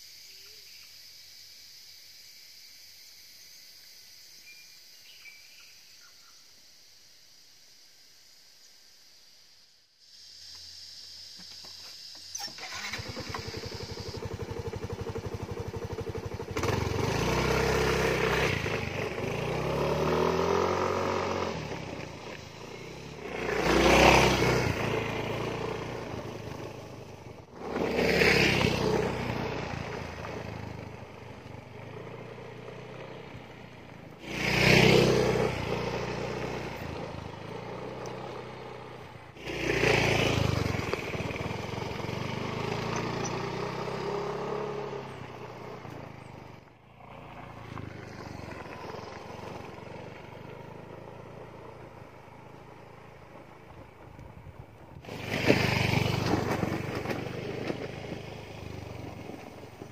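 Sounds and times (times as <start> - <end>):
motor scooter engine: 12.1 - 59.9.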